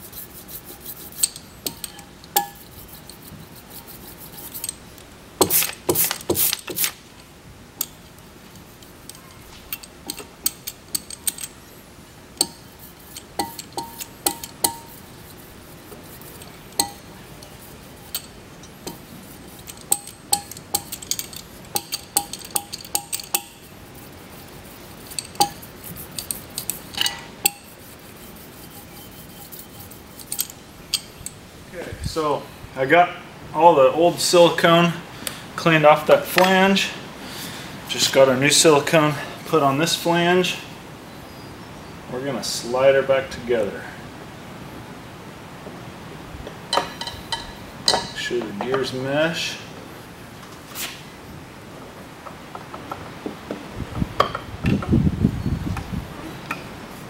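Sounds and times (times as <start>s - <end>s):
metal scraper scraping aluminium: 0.0s - 6.8s, 12.4s - 31.1s.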